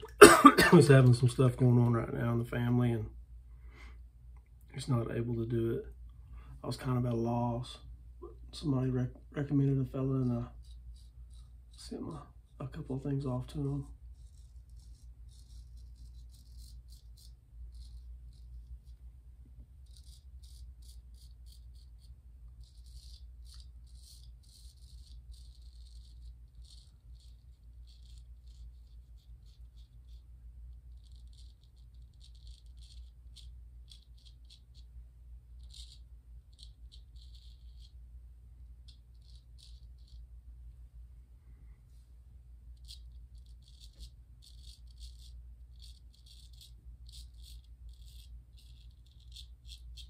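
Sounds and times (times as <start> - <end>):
steady low hum: 0.0 - 50.0
razor scraping stubble: 8.2 - 19.0, 19.7 - 34.9, 35.6 - 38.0, 38.8 - 40.3, 42.7 - 50.0.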